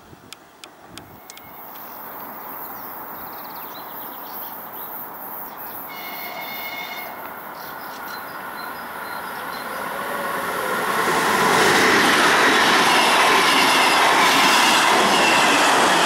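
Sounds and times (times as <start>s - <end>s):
electric train running rumble: 4.8s - 16.0s.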